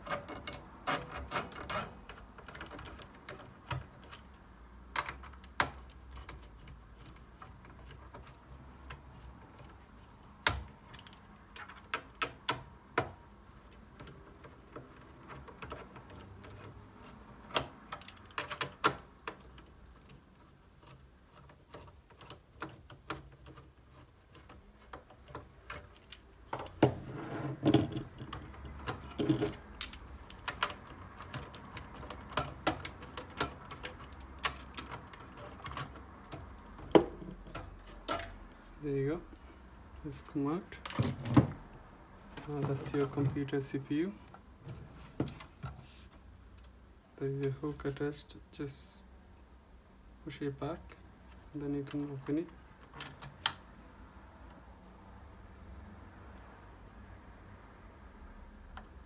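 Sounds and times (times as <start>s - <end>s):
screwdriver clicks and metal taps: 0.0s - 26.9s, 27.7s - 38.5s, 51.8s - 53.6s
knocking and rattling: 13.8s - 38.5s.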